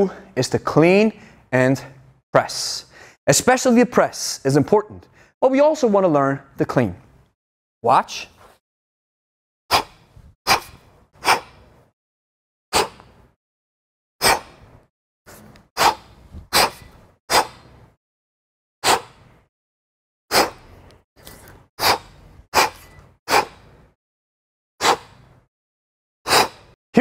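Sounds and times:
man's short sharp breaths: 0:05.1 - 0:05.4, 0:09.7 - 0:11.8, 0:15.8 - 0:17.7, 0:21.8 - 0:23.9, 0:24.8 - 0:25.2, 0:26.3 - 0:26.8.

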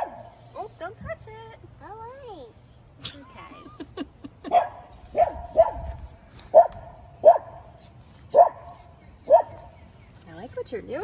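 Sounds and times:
dog barking: 0:00.0 - 0:00.3, 0:04.5 - 0:05.9, 0:06.5 - 0:07.7, 0:08.3 - 0:09.7.

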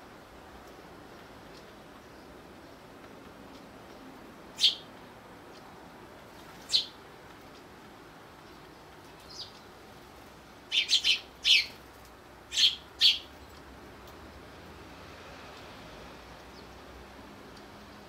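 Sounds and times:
sparrows chirping: 0:03.9 - 0:05.0, 0:06.3 - 0:07.0, 0:08.3 - 0:10.0, 0:10.6 - 0:13.7, 0:16.4 - 0:16.9.

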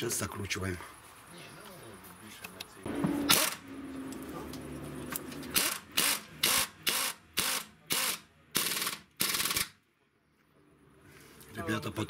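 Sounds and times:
pneumatic wrench bursts: 0:03.2 - 0:03.6, 0:05.5 - 0:09.8.

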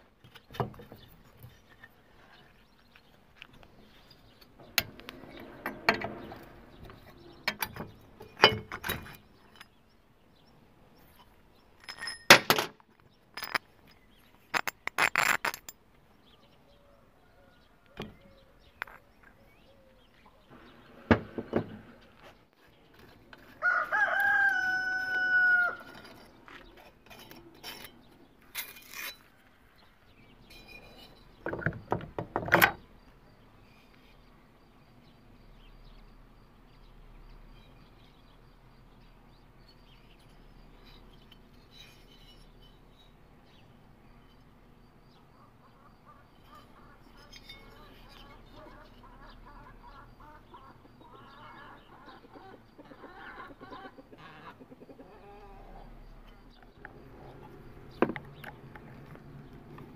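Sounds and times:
rooster crowing: 0:23.5 - 0:26.0.

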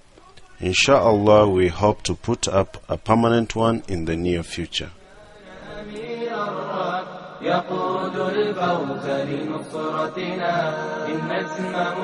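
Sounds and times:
voices chanting: 0:05.0 - 0:12.0.

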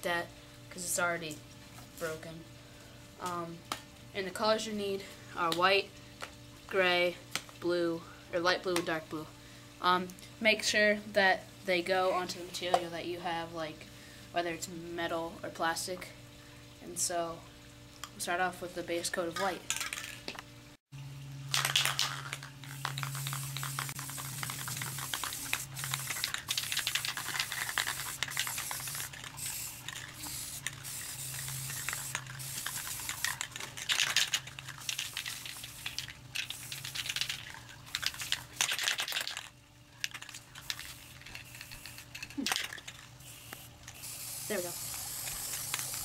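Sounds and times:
low steady hum: 0:00.0 - 0:46.0
spray-paint can hissing: 0:22.7 - 0:39.3, 0:40.6 - 0:42.1, 0:43.2 - 0:46.0.

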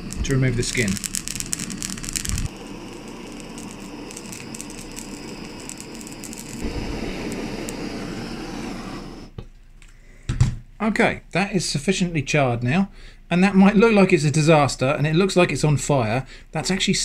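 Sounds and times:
blowtorch flame roaring: 0:00.0 - 0:09.4.

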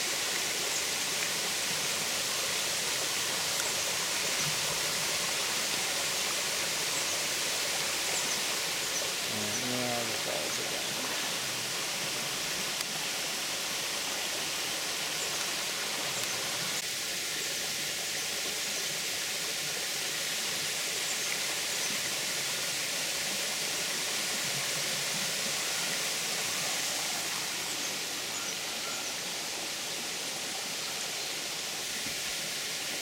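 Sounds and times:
waterfall rushing: 0:00.0 - 0:17.2
creek splashing over rocks: 0:00.0 - 0:28.3.

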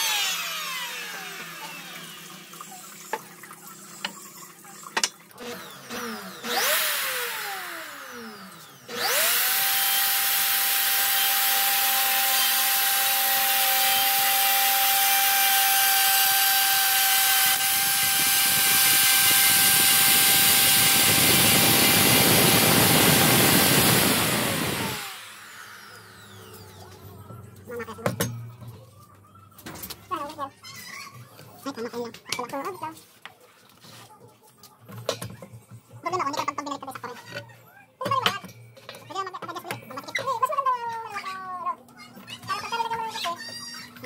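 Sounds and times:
power tool winding down: 0:00.0 - 0:03.2, 0:05.4 - 0:27.0
router cutting wood: 0:00.0 - 0:03.2, 0:05.4 - 0:26.9.

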